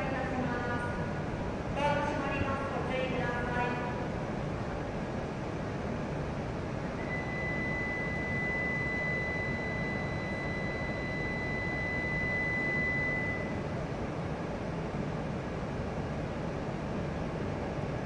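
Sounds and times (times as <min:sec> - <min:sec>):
station platform background noise: 0:00.0 - 0:18.0
high electronic warning tone: 0:06.9 - 0:13.6.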